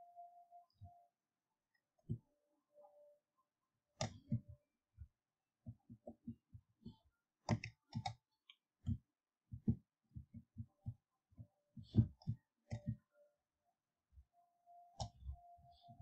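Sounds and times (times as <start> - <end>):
computer mouse clicking: 7.5 - 8.2, 11.8 - 13.0.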